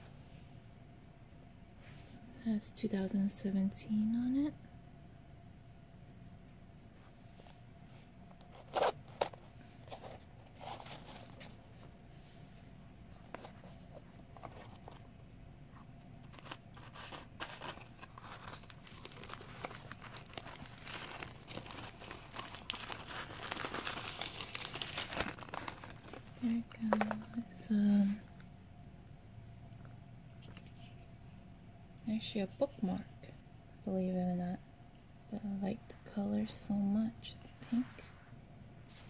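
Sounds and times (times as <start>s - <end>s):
tissue paper rustling: 7.2s - 15.0s, 16.3s - 27.3s.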